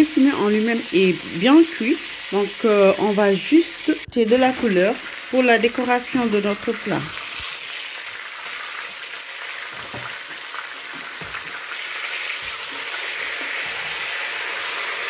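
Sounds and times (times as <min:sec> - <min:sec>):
hot oil sizzling: 0:00.0 - 0:15.0.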